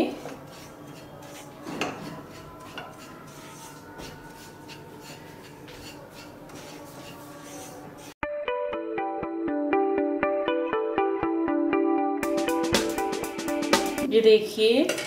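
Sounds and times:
spatula scraping grains in pan: 0.0s - 8.2s.

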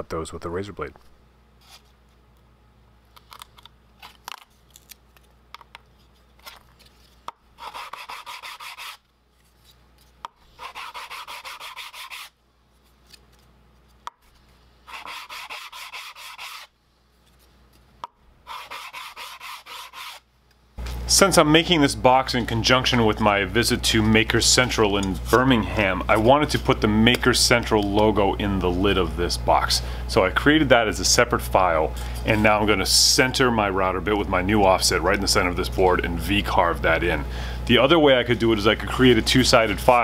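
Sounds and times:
wood sanding on sanding board: 7.6s - 9.0s, 10.6s - 12.3s, 14.9s - 16.7s, 18.5s - 20.2s.

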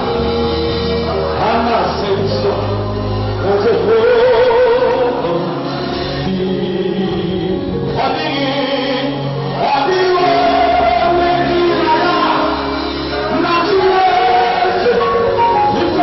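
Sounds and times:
band accompaniment with bass: 0.0s - 16.0s
man singing through a pa: 1.4s - 16.0s.

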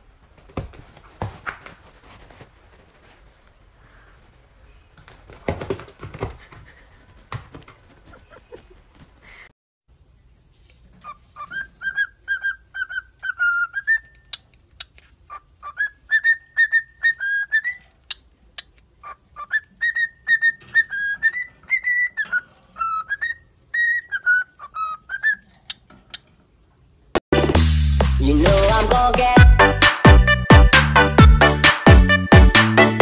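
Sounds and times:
cockatiel whistling: 11.0s - 14.4s, 15.6s - 17.9s, 19.4s - 25.4s.

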